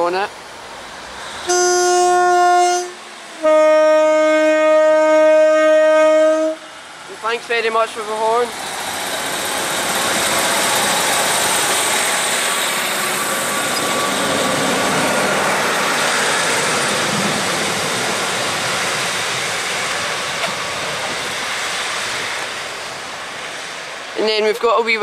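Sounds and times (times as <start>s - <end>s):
diesel train engine: 0.0s - 25.0s
train wheels on rails: 6.6s - 25.0s.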